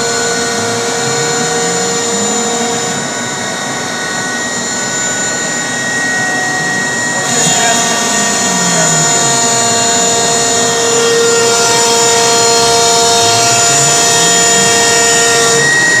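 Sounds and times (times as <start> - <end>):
router spindle whine: 0.0 - 16.0.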